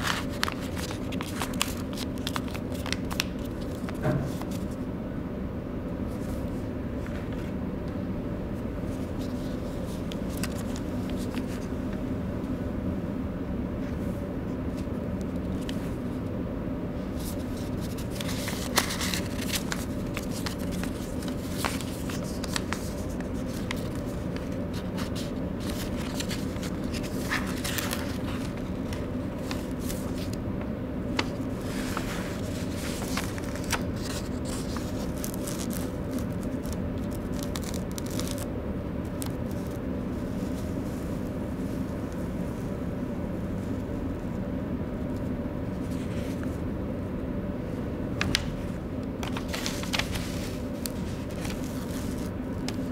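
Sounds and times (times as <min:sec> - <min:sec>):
paper rustling and crackling: 0:00.0 - 0:04.8, 0:08.9 - 0:12.0, 0:14.7 - 0:16.2, 0:17.1 - 0:42.8, 0:48.2 - 0:52.9
low background hum: 0:00.0 - 0:52.9.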